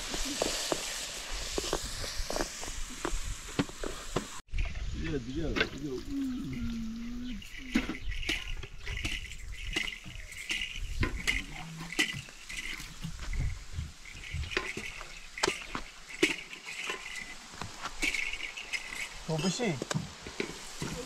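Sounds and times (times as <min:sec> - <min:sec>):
crickets chirping: 0:00.0 - 0:21.0
utensils clinking on cookware: 0:06.5 - 0:21.0.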